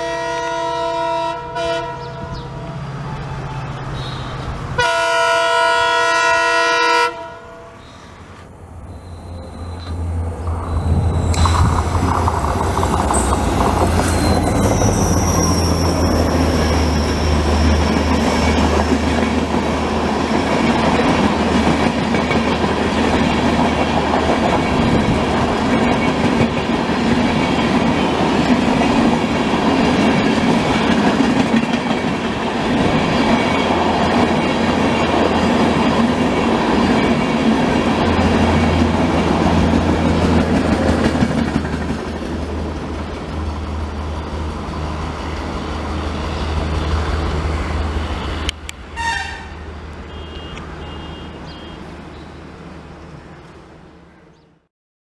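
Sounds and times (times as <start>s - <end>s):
train wheels rumbling on rail: 8.2s - 52.0s.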